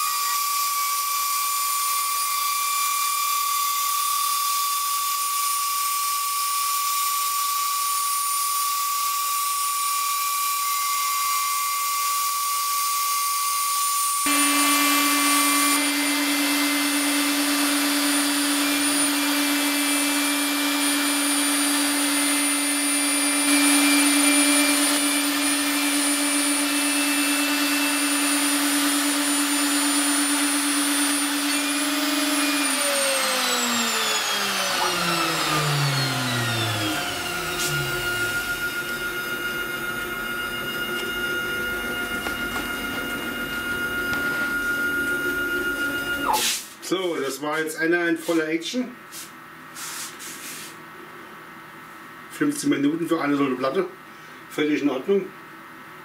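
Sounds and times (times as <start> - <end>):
router spindle high whine: 0.0 - 12.3, 14.1 - 46.4
dust extraction hiss: 34.1 - 38.6, 46.3 - 47.0, 48.2 - 50.8.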